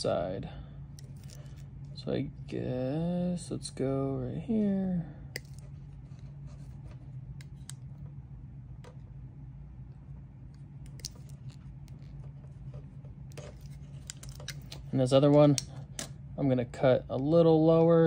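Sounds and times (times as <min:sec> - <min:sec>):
steady low hum: 0:00.0 - 0:18.0
wire strippers clicking and snipping: 0:13.3 - 0:16.1.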